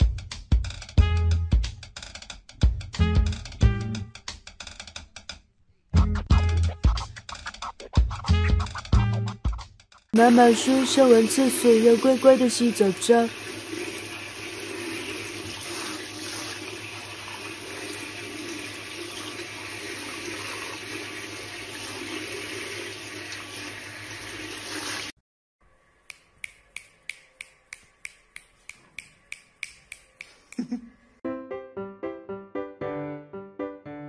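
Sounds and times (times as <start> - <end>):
sharp clicks: 26.1 - 30.6.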